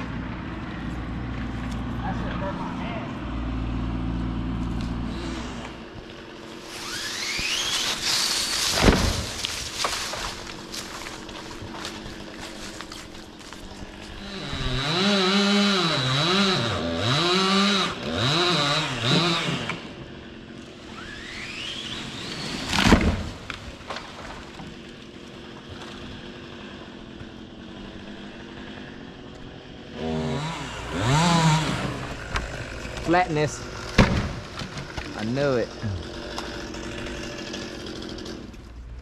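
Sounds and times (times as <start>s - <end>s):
chainsaw revving and idling: 0.0s - 23.7s, 24.6s - 39.0s
heavy thud: 8.7s - 9.4s, 34.0s - 34.4s.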